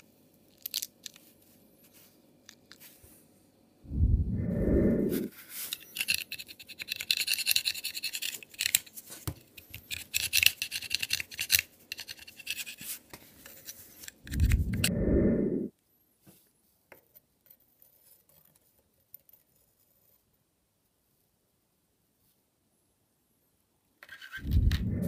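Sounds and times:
low rumble: 3.9s - 5.3s, 14.3s - 15.7s, 24.4s - 25.0s.

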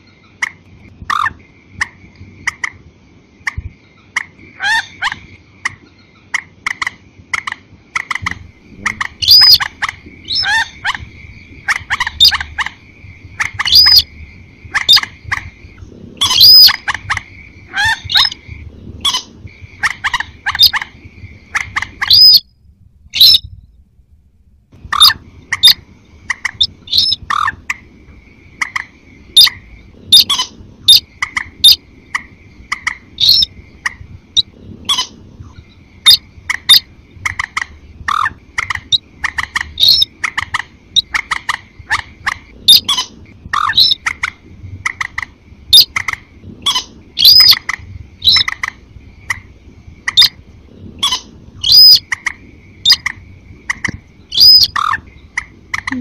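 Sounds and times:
short sharp bird calls: 8.0s - 11.1s, 21.6s - 22.5s, 54.3s - 55.0s.

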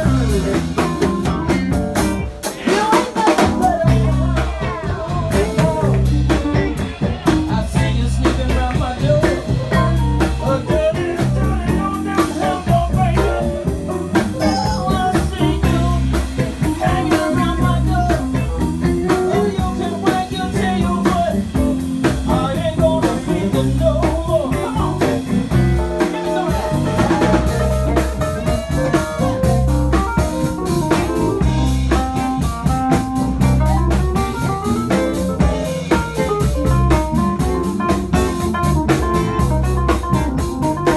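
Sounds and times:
live blues band playing: 0.0s - 40.9s
woman singing: 2.5s - 13.4s, 14.1s - 21.6s.

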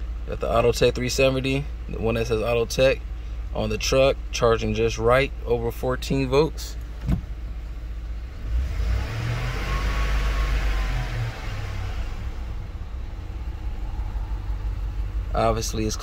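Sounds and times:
car engine running from inside: 0.0s - 16.0s.

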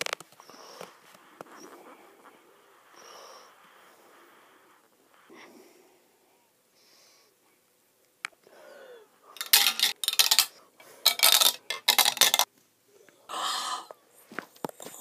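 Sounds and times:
marbles clattering down a tube: 9.4s - 12.5s.

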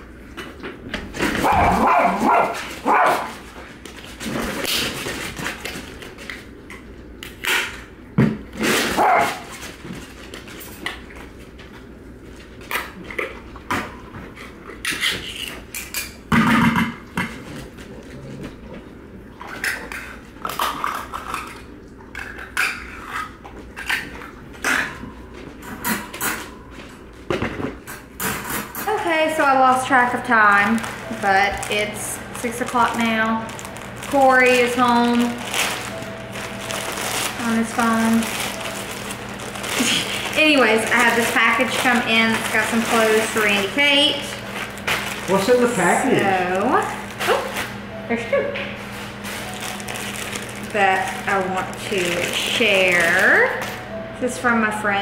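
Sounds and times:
dogs barking: 1.4s - 3.5s, 8.8s - 9.5s.

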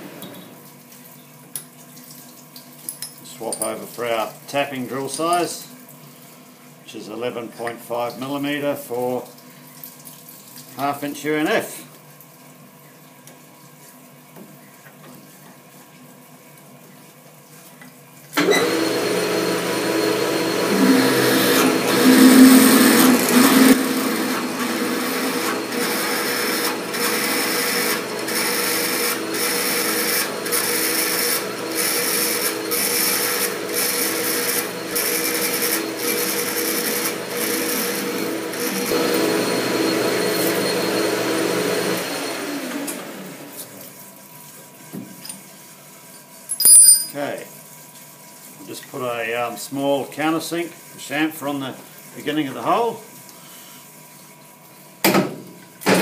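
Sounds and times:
lathe machine hum: 18.4s - 43.5s.

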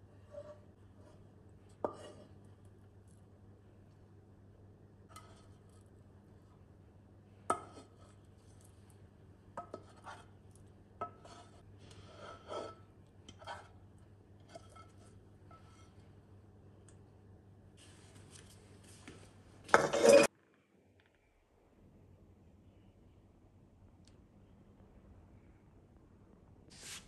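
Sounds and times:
spatula scraping a bowl: 0.0s - 2.4s, 9.6s - 10.4s, 11.0s - 13.8s, 14.4s - 16.1s, 19.7s - 20.3s.

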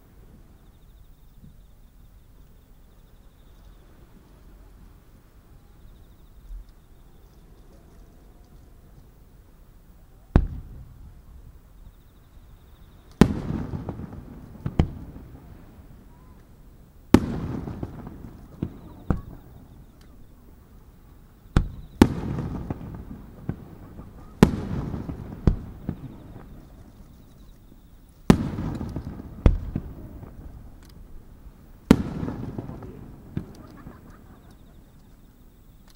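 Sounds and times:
firework shells bursting: 13.0s - 35.9s.

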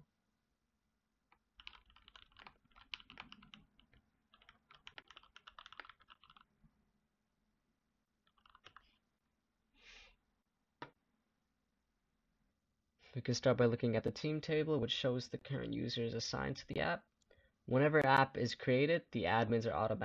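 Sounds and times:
computer keyboard typing: 1.6s - 6.5s, 8.3s - 9.0s.

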